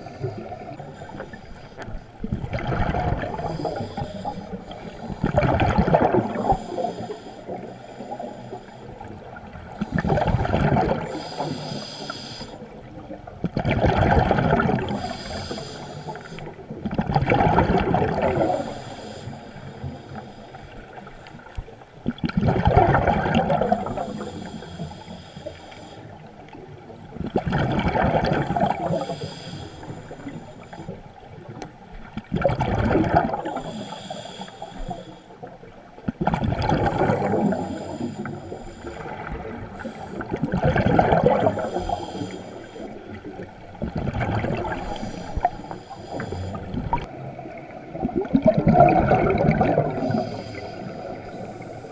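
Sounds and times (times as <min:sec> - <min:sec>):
regulator inhale hiss: 0:00.0 - 0:02.0, 0:03.3 - 0:05.2, 0:06.3 - 0:09.1, 0:11.0 - 0:12.8, 0:14.9 - 0:16.6, 0:18.4 - 0:21.8, 0:23.7 - 0:26.4, 0:28.5 - 0:31.0, 0:33.4 - 0:35.6, 0:36.9 - 0:40.4, 0:41.5 - 0:43.5, 0:44.7 - 0:47.0, 0:49.9 - 0:51.9
bubbling rush of exhaled air: 0:02.2 - 0:06.9, 0:09.9 - 0:11.5, 0:13.6 - 0:15.6, 0:16.8 - 0:18.7, 0:22.1 - 0:24.4, 0:27.2 - 0:29.2, 0:32.2 - 0:33.8, 0:36.1 - 0:42.4, 0:43.2 - 0:47.2, 0:47.9 - 0:51.9.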